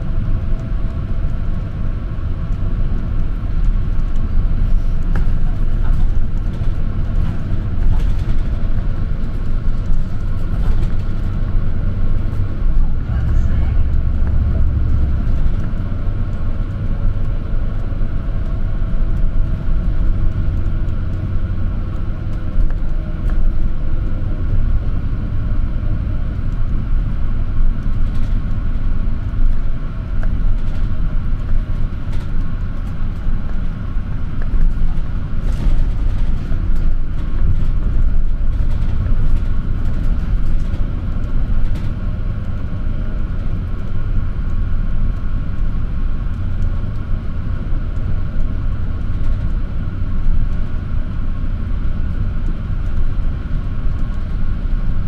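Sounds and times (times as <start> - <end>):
bus engine and road rumble: 0.0 - 55.0.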